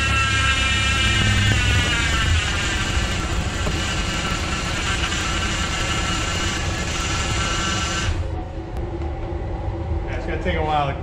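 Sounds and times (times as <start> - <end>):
power steering pump whining: 0.0 - 8.8
car engine rumbling: 0.4 - 9.9.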